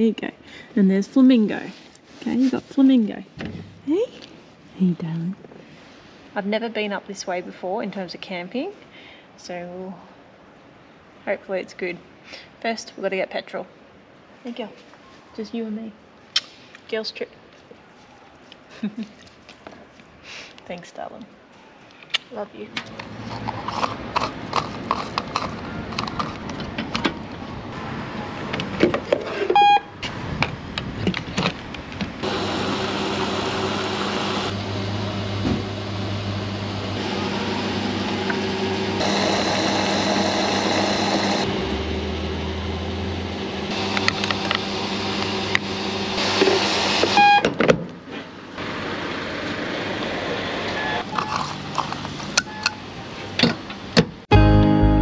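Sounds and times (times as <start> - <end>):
short beep: 29.6 - 29.9, 47.2 - 47.4
fuel pump motor hum: 32.2 - 47.4.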